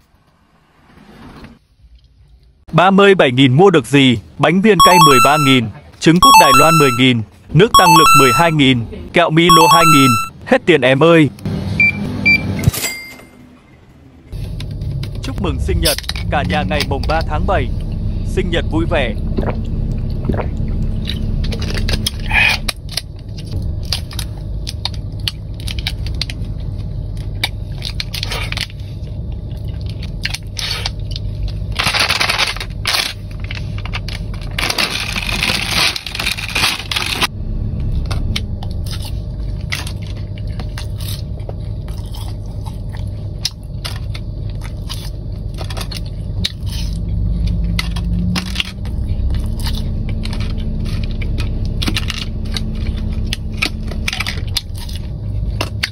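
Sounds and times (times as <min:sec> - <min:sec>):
low hum: 0:14.3 - 0:55.9
crunching and chewing: 0:19.4 - 0:37.3, 0:38.1 - 0:55.9
snack packaging crinkling: 0:29.9 - 0:37.3.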